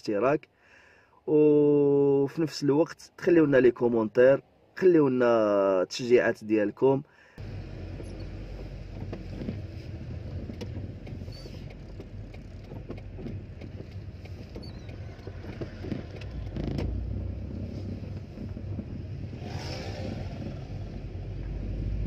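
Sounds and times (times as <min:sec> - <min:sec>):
car engine and road rumble: 0:07.4 - 0:22.0
small creaks and clicks: 0:10.3 - 0:17.0.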